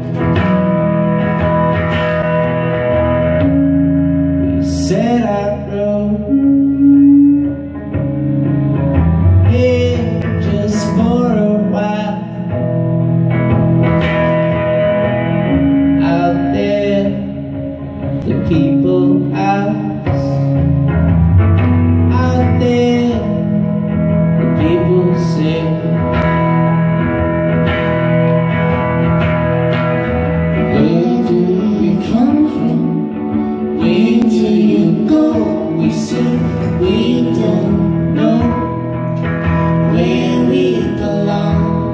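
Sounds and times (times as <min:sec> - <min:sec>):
acoustic-electric guitar chords: 0:00.0 - 0:41.9
person singing: 0:04.4 - 0:12.9, 0:15.6 - 0:20.9, 0:22.0 - 0:26.6, 0:30.3 - 0:41.9.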